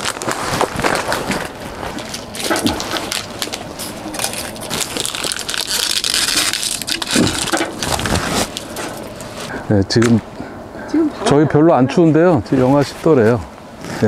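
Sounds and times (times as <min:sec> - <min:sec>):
dense crunching and crackling: 0:00.0 - 0:09.5.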